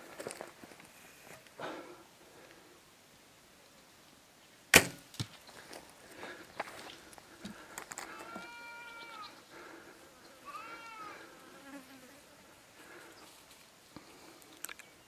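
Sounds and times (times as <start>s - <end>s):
high clear animal calls: 8.1s - 9.4s, 10.4s - 11.3s.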